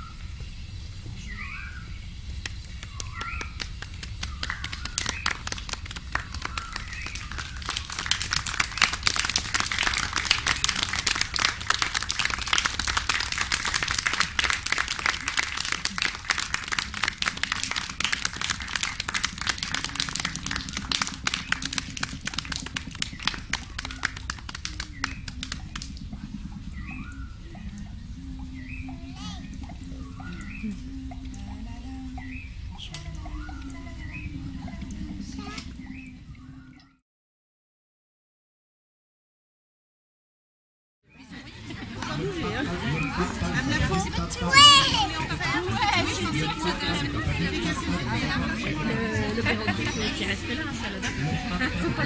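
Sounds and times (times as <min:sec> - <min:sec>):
bird-like chirping whistles: 0:01.2 - 0:02.0, 0:02.9 - 0:03.6, 0:26.7 - 0:27.6.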